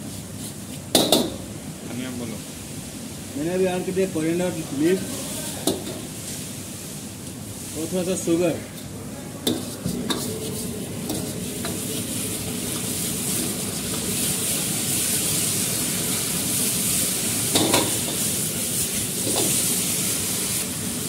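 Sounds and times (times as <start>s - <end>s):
food sizzling in a wok: 0.0s - 21.0s
metal ladle scraping wok: 9.5s - 20.7s.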